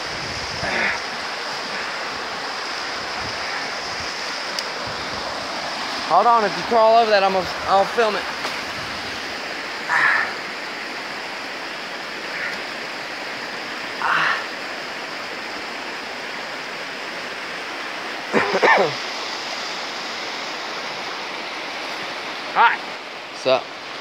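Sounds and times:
creek water running over rocks: 0.0s - 24.0s.

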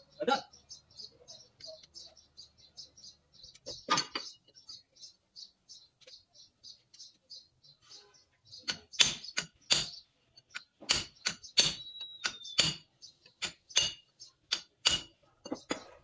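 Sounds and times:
metal hand tool striking metal: 8.7s - 15.9s.

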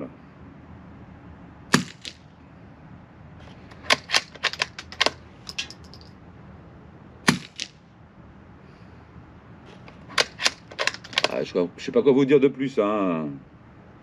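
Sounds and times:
rifle shots with echo: 1.7s - 2.2s, 7.3s - 7.7s
rifle bolt metallic clicks: 3.7s - 6.1s, 9.7s - 11.4s.

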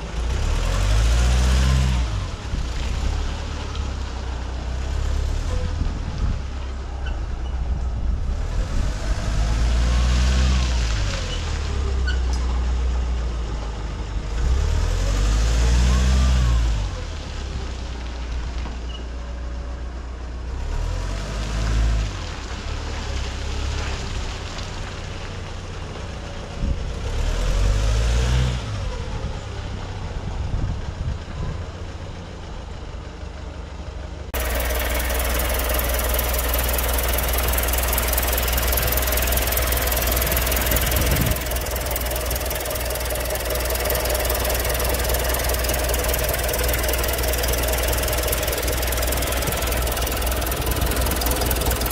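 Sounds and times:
diesel truck engine running: 0.0s - 21.2s, 22.0s - 51.9s
diesel engine idling close up: 28.8s - 51.9s.

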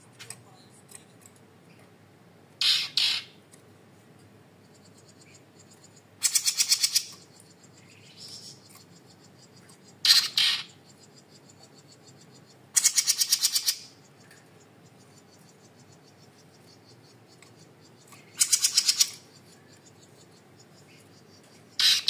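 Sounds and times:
songbird singing rapid trills: 4.5s - 22.0s.

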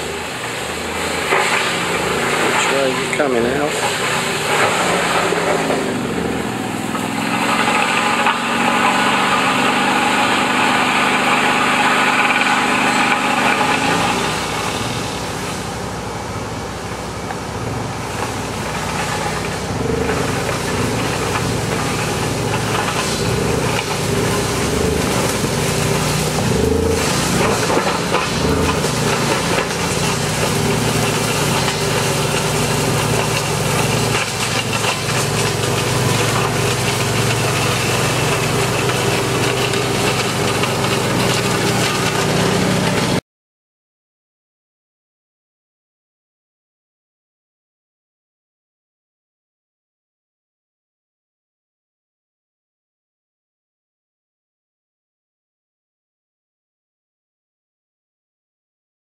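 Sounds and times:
engine drone: 0.0s - 43.2s.

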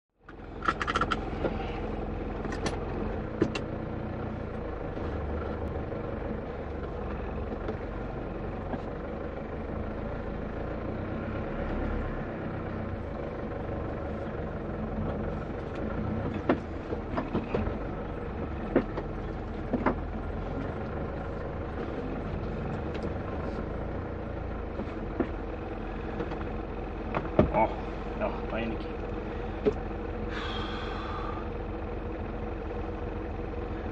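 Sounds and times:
diesel engine idling: 0.2s - 33.9s
sharp clicks and knocks: 0.6s - 1.6s, 3.4s - 3.7s, 15.7s - 17.8s, 18.7s - 20.1s.

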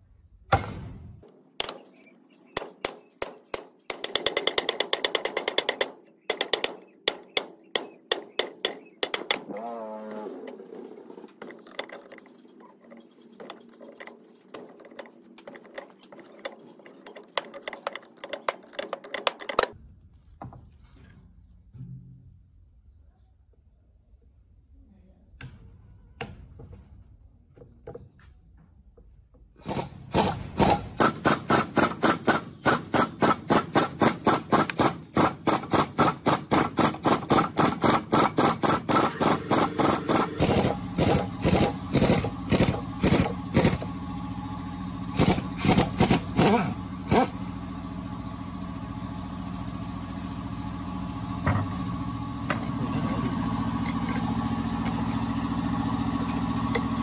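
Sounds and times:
metallic hammering on gear puller: 1.6s - 9.6s, 11.4s - 19.8s, 29.8s - 43.9s
steady machine hum: 30.4s - 57.0s.

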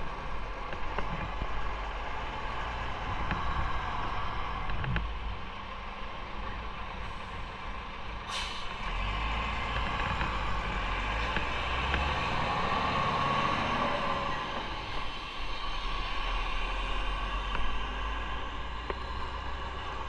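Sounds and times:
motorcycle engine and road noise: 0.0s - 20.0s
short sharp hiss: 8.3s - 8.8s.

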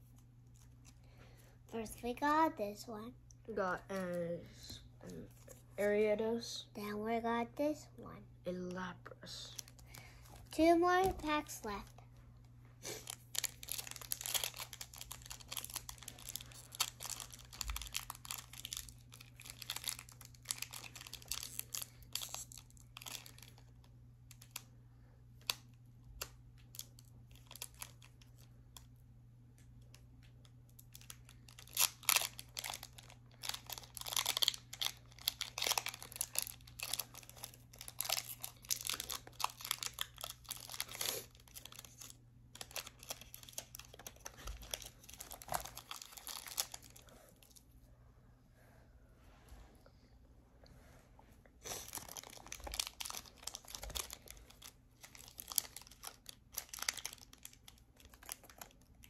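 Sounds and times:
foil wrapper crinkling and tearing: 12.9s - 24.7s, 25.4s - 28.9s, 30.7s - 47.6s, 51.6s - 59.0s.

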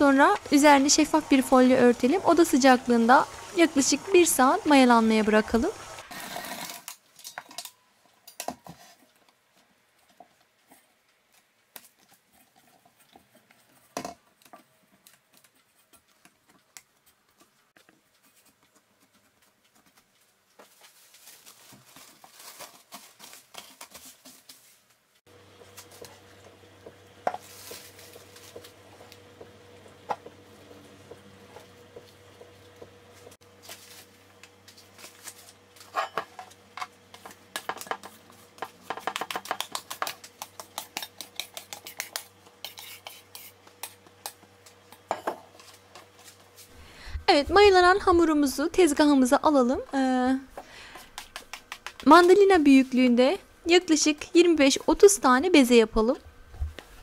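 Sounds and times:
plastic film crinkling: 20.5s - 25.0s, 27.4s - 28.8s, 33.5s - 35.9s
steady low hum: 39.7s - 57.0s.

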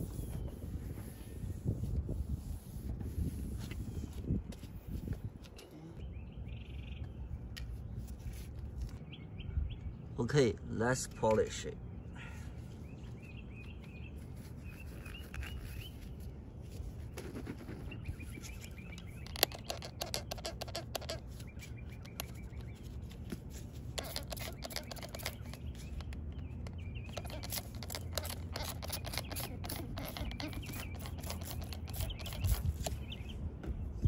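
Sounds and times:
polishing pad rubbing plastic: 0.0s - 4.7s, 14.2s - 33.2s
birds chirping: 5.2s - 34.0s.

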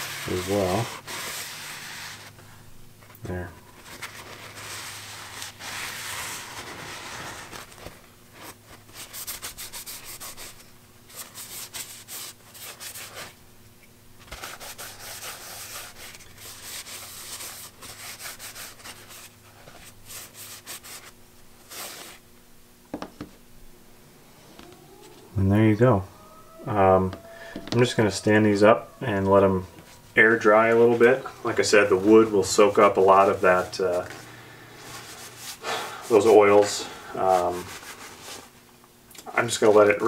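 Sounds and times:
cloth scrubbing on wood: 0.0s - 2.4s, 3.8s - 13.3s, 14.3s - 22.2s, 27.8s - 34.2s, 34.8s - 38.6s.

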